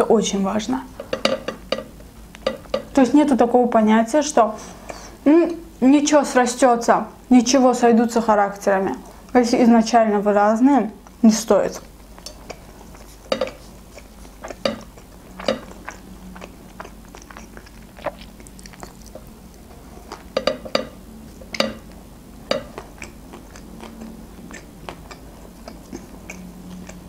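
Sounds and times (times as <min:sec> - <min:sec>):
wet mouth clicks: 0:11.8 - 0:21.9, 0:22.5 - 0:27.0
person chewing food: 0:11.8 - 0:27.0.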